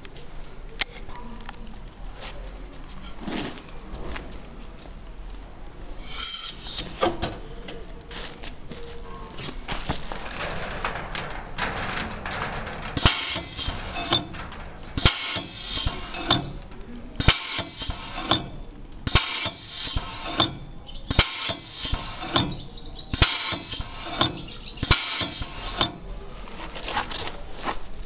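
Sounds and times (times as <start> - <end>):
hissing air: 6.0 - 7.4, 10.5 - 26.1
pneumatic can opener clicking: 6.0 - 7.4, 11.2 - 26.1.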